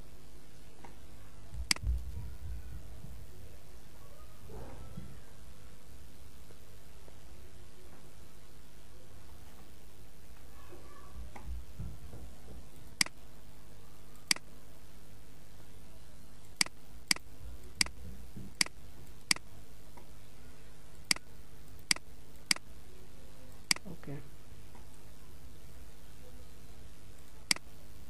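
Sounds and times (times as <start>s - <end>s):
faint low hum: 0.0s - 28.0s
computer mouse button clicking: 23.6s - 23.8s, 27.2s - 27.7s.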